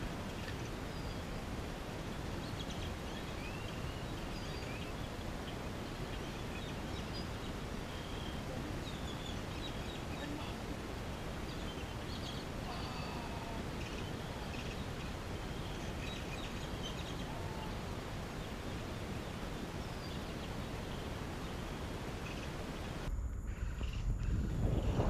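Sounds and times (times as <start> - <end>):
steady hiss: 0.0 - 25.0
faint bird chirps: 2.4 - 10.6, 11.4 - 25.0
low rumble: 23.0 - 25.0.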